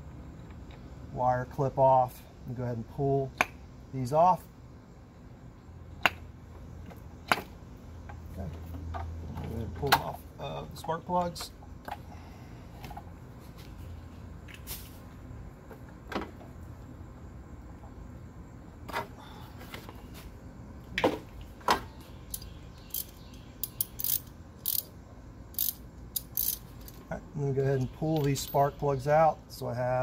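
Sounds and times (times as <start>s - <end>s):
ratchet clicking: 22.3s - 24.9s, 25.5s - 27.0s.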